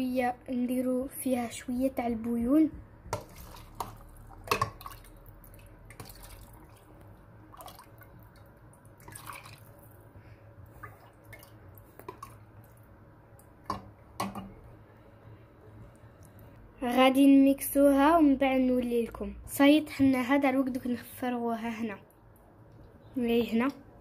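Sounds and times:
low steady hum: 0.0 - 24.0
liquid dripping: 3.1 - 10.1, 10.7 - 14.6.

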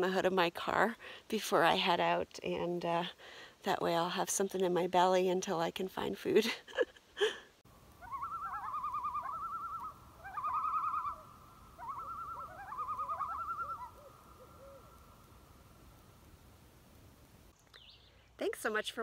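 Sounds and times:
loon tremolo calls: 8.0 - 15.5.

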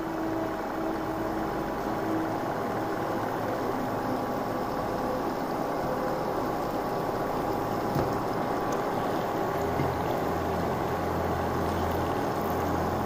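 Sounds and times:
pastries sizzling in hot oil: 2.1 - 13.0.

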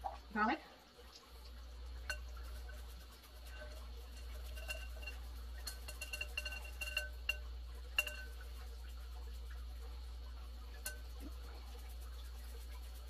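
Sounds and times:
metal grater clinking: 2.0 - 8.7, 10.7 - 11.4.

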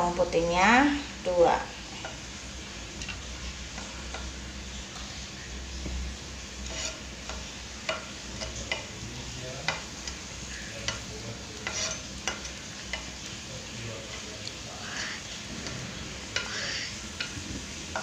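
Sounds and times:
shallots sizzling in oil: 0.0 - 18.0
knife tapping and scraping: 3.0 - 5.1, 6.6 - 9.0, 9.6 - 13.2, 14.0 - 14.6, 15.2 - 18.0.

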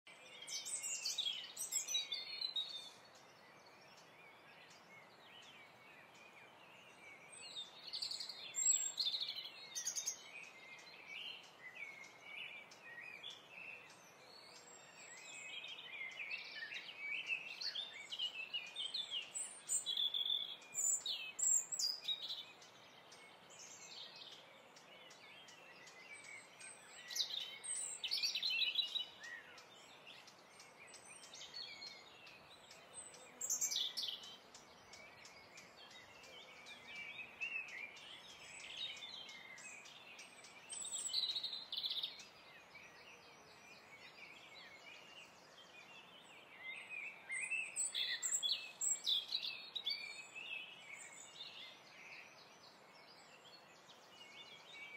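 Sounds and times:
small birds chirping: 0.0 - 54.9.

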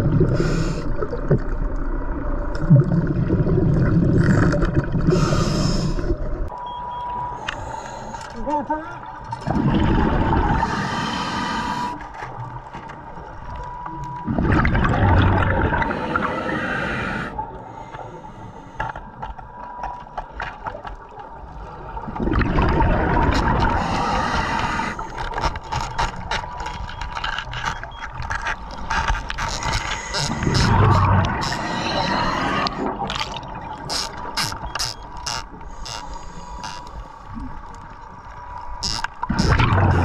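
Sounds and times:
diver breathing through regulator: 0.2 - 1.0, 5.1 - 6.2, 10.5 - 12.2, 15.8 - 19.2, 23.7 - 25.3, 29.5 - 32.9, 35.6 - 37.2
faint steady tone: 5.9 - 9.4, 11.4 - 21.7
bubbles surging underwater: 9.4 - 10.7, 14.3 - 15.9, 21.9 - 23.8, 39.5 - 40.0.

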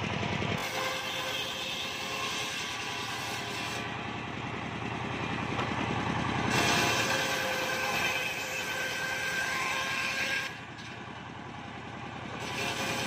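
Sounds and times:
sawmill blade droning: 0.0 - 13.0
hiss of saw cutting wood: 6.5 - 8.8.

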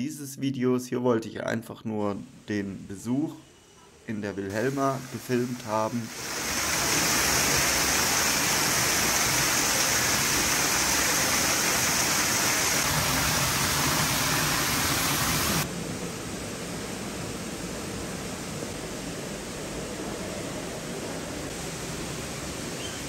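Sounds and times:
steady hiss: 0.1 - 23.0
waterfall splashing: 4.5 - 15.7.

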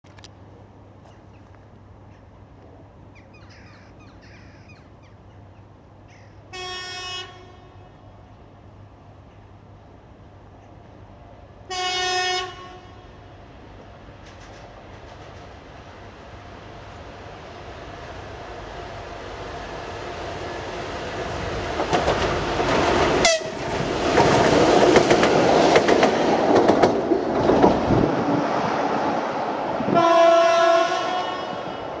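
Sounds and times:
diesel locomotive engine: 0.1 - 32.0
birds chirping: 3.1 - 6.4
locomotive horn blast: 6.5 - 8.0, 11.7 - 13.2, 23.2 - 23.7, 29.9 - 32.0.

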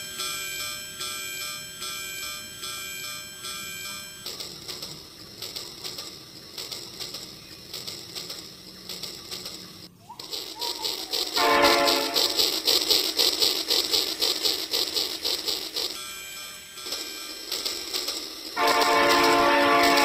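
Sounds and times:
toy train pulsing chug: 0.0 - 20.0
toy trains clicking on track: 0.0 - 20.0
toy train electronic horn hoot: 10.2 - 14.8, 18.5 - 20.0.

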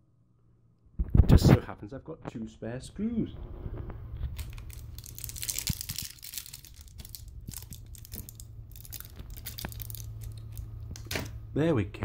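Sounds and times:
crinkling rustling handling noise: 4.2 - 11.1.

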